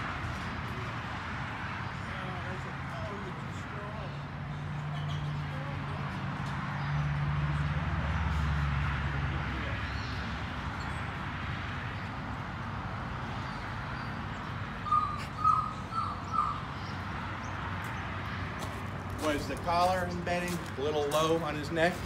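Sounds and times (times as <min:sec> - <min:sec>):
outdoor background noise: 0:00.0 - 0:22.0
bird chirping: 0:13.4 - 0:18.0.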